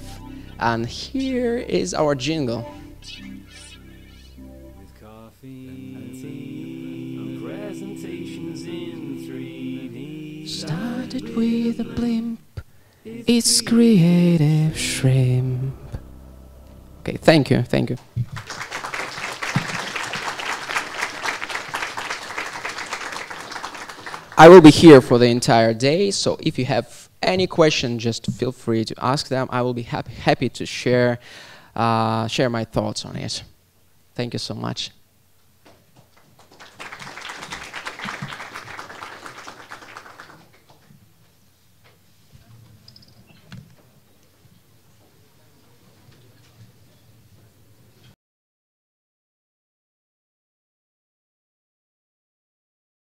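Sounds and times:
audience applauding: 0:18.2 - 0:24.8, 0:36.2 - 0:40.7.

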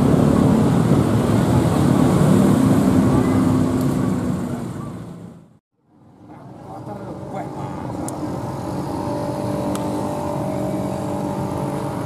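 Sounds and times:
engine running: 0:00.0 - 0:12.0
people talking: 0:06.2 - 0:08.1.

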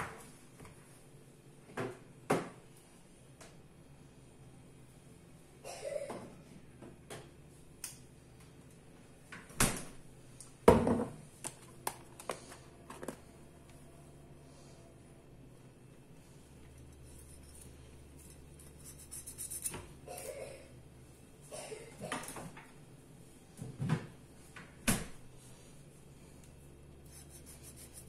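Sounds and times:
kitchen knocks and clunks: 0:10.6 - 0:11.2, 0:23.6 - 0:24.2.

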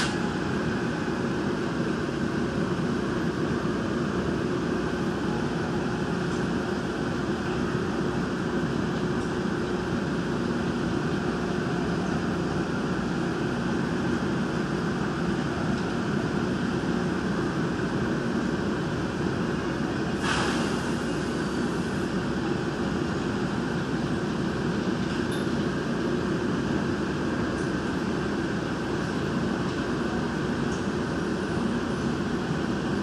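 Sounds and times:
train rumbling with low hum: 0:00.0 - 0:33.0
brief hiss: 0:20.2 - 0:21.0.

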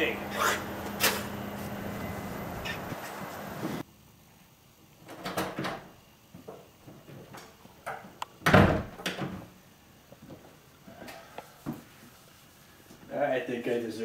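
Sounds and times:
wooden door opening and shutting: 0:05.0 - 0:06.0, 0:07.9 - 0:09.5
door closing thud: 0:08.4 - 0:09.4.

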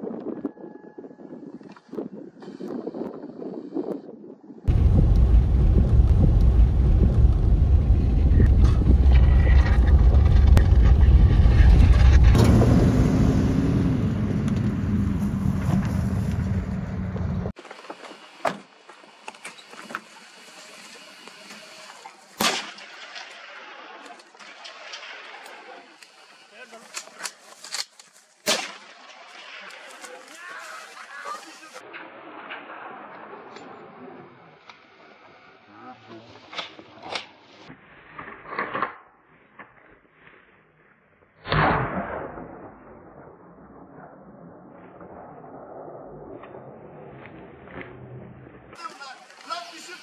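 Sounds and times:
truck engine running: 0:04.7 - 0:17.5
gunshot with echo: 0:41.4 - 0:43.1.

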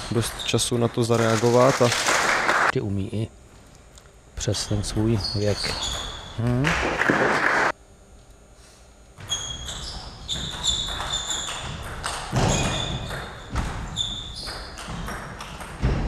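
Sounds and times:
shoes squeaking on floor: 0:05.2 - 0:06.4, 0:09.2 - 0:15.1.

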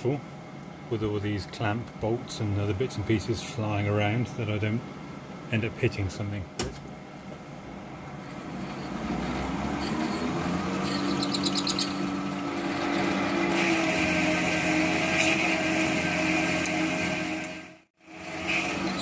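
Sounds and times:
lathe humming: 0:07.3 - 0:19.0
boring bar cutting hiss: 0:12.8 - 0:19.0.

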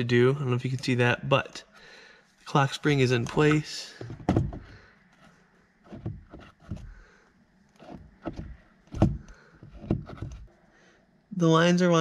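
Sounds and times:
steering wheel knocking on column: 0:04.0 - 0:04.7, 0:07.8 - 0:10.5.

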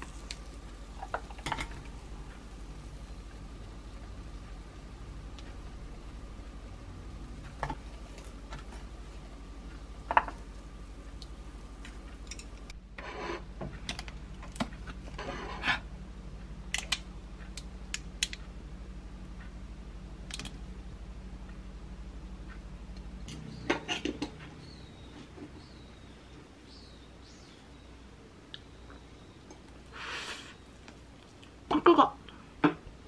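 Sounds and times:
utensils and plate clicking: 0:00.0 - 0:01.9, 0:11.8 - 0:14.6
low hum: 0:00.0 - 0:29.9.

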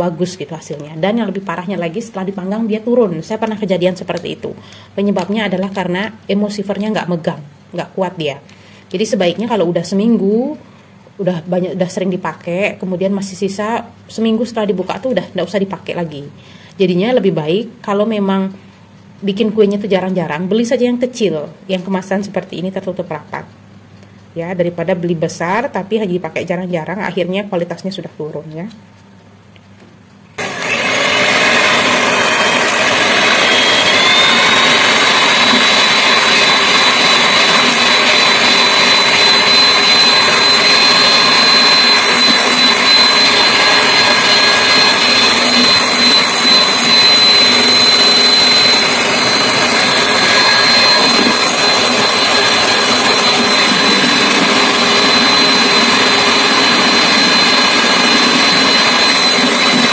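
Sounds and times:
electric hand mixer whisking: 0:30.4 - 0:59.9.

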